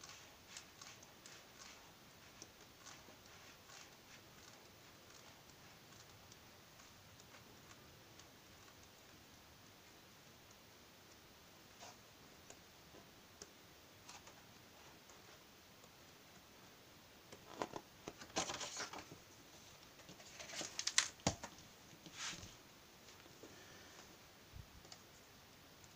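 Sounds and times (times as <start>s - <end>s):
book pages turning: 0.0s - 5.4s, 17.4s - 19.2s, 19.9s - 22.6s.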